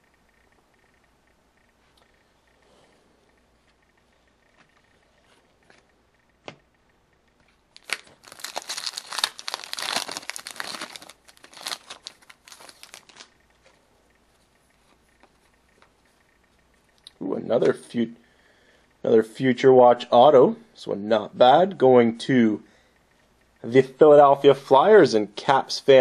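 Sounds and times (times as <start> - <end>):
wrapper tearing and crinkling: 7.8 - 13.3.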